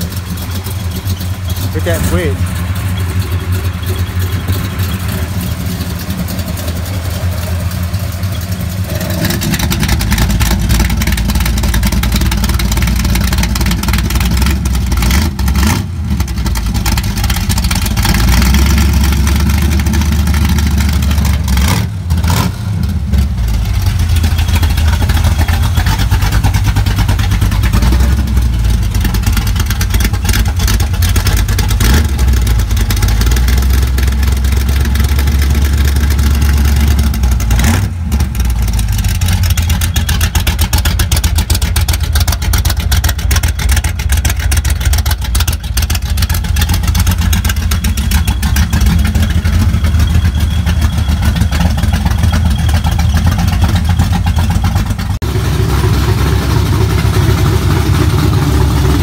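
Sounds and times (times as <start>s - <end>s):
car engine revving loudly: 21.4s - 22.9s, 37.3s - 38.3s, 55.2s - 59.0s.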